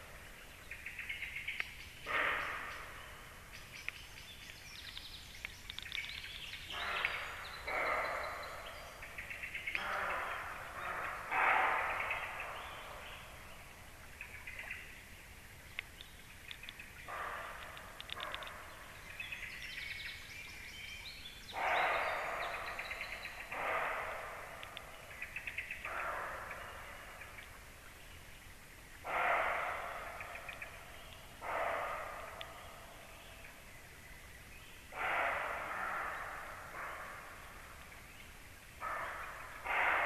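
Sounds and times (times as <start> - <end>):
small birds chirping: 0.0 - 14.9, 15.6 - 28.4.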